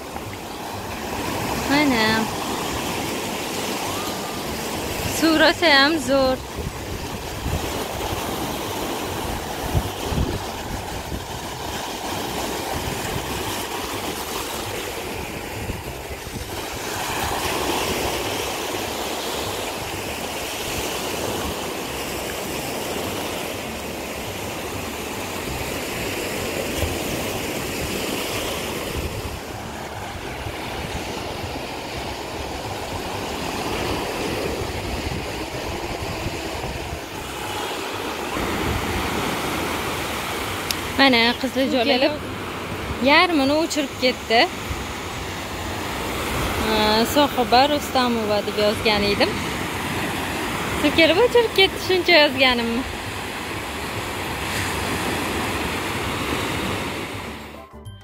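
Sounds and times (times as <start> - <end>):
waves breaking on a beach: 0.0 - 57.6
wind on microphone: 6.1 - 20.4, 26.7 - 41.0.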